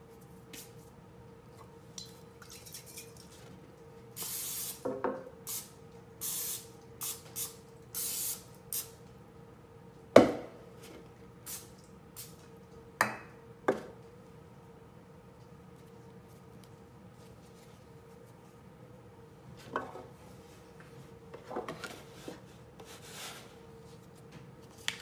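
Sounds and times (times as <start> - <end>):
cooking oil spray hissing: 4.2 - 4.8, 5.5 - 8.9.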